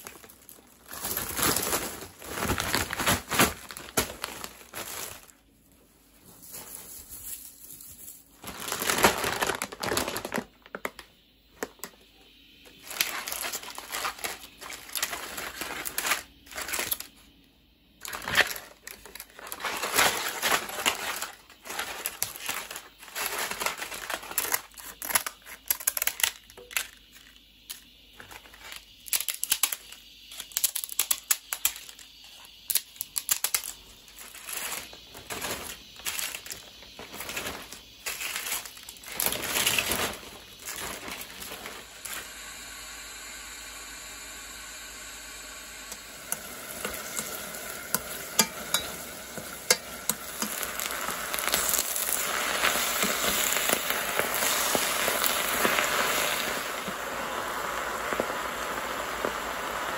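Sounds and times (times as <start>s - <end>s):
dry seaweed crackling: 0.0s - 5.4s, 18.0s - 27.3s, 30.4s - 42.1s, 46.3s - 59.9s.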